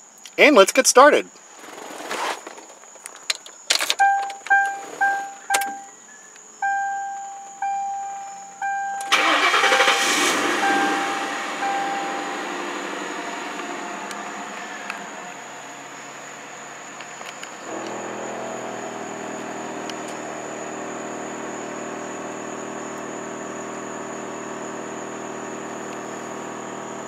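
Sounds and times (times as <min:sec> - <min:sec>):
key clicking into ignition: 0:03.4 - 0:05.9, 0:08.6 - 0:09.7
car engine starting and idling: 0:03.7 - 0:05.9, 0:06.6 - 0:27.0
dashboard warning chime: 0:04.0 - 0:13.2.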